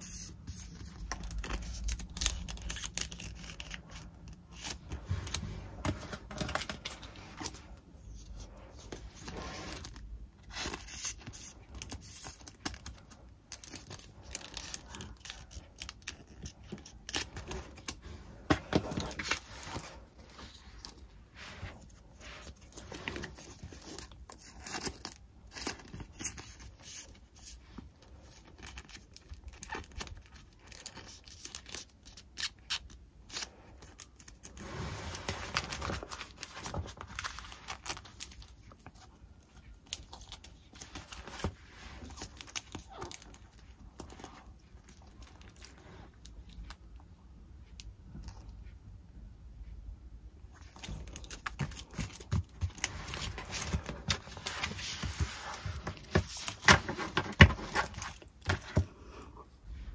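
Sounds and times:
paper rustling: 33.9s - 44.4s, 50.6s - 58.9s.

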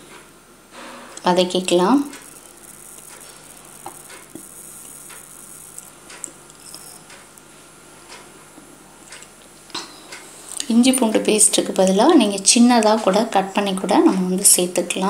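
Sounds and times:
spoon scraping in a pan: 2.2s - 7.1s.

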